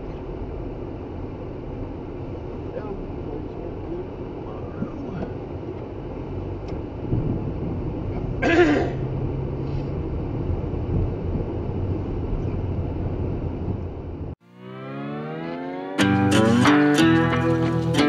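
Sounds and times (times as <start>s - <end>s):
vehicle engine and road rumble: 0.0s - 18.0s
person clearing throat: 8.4s - 9.0s.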